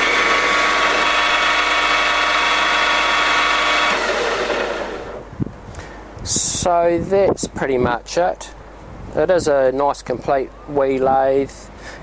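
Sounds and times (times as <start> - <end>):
lathe spindle whining: 0.0 - 5.3.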